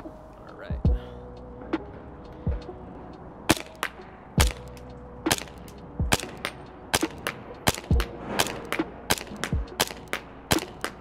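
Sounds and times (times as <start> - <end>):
airsoft pistol shots: 5.3 - 10.8.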